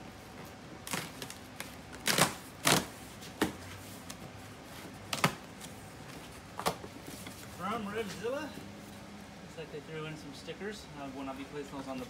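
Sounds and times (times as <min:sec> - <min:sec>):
packing tape ripping: 0:00.8 - 0:03.0.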